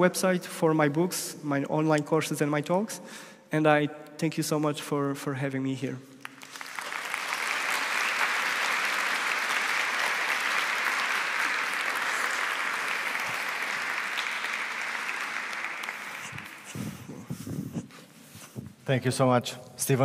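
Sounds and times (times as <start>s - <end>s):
audience applauding: 6.2s - 17.3s.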